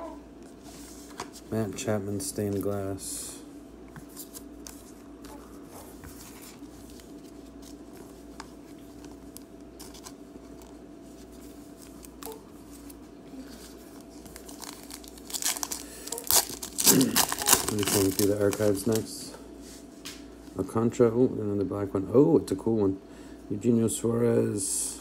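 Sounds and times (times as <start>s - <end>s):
low steady hum: 0.0s - 25.0s
foil pack crinkling: 6.3s - 19.3s.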